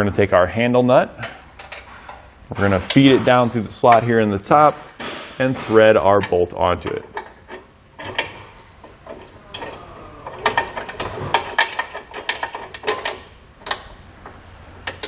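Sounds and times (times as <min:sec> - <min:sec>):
metal bolt clicking on steel plate: 0:07.0 - 0:14.0.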